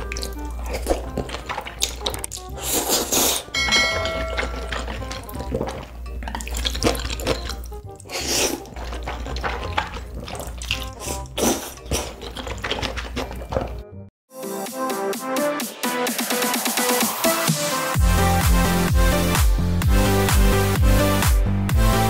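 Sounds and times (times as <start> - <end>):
background music with low bass: 0.0 - 22.0
wet slurping of noodles: 0.2 - 3.5, 4.7 - 13.8.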